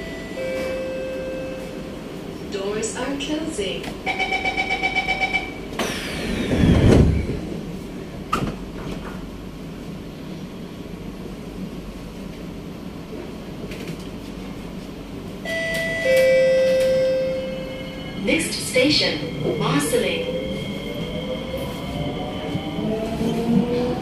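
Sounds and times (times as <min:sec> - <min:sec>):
rapid warning beeping: 0:04.1 - 0:05.6
sliding doors whining shut: 0:05.8 - 0:07.5.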